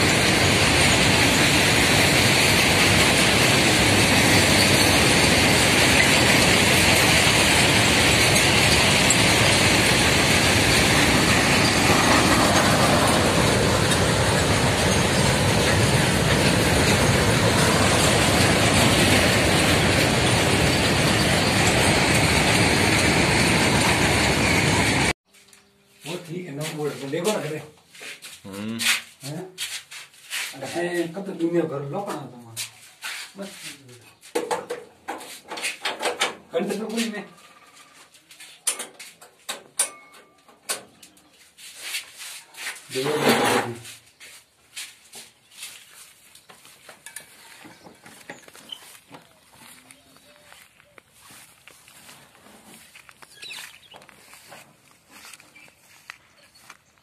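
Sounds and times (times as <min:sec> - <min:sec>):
freight train wheels rumbling: 0:00.0 - 0:25.2, 0:46.5 - 0:57.0.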